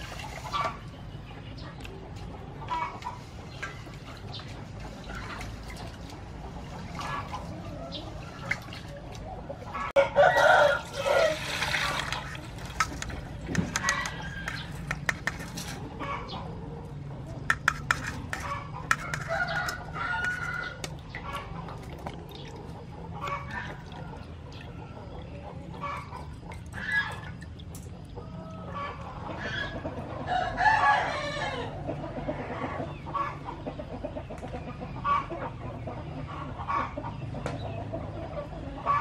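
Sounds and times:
water poured through a sieve: 0.0 - 0.9, 3.1 - 9.2, 10.3 - 15.9
chickens clucking: 0.0 - 39.0
rooster crowing: 10.0 - 11.7, 30.2 - 31.9
rice swished in a steel bowl: 17.6 - 19.3.

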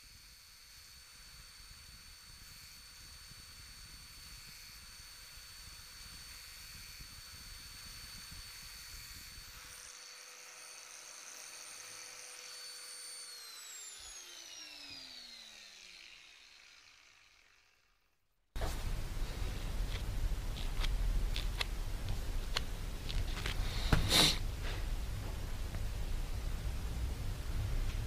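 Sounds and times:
angle grinder whining: 0.0 - 18.0.

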